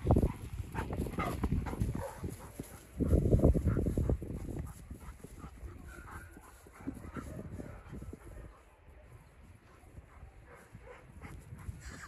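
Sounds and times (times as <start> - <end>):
footsteps on snow: 0.0 - 8.6
wind rumbling on microphone: 0.0 - 12.0.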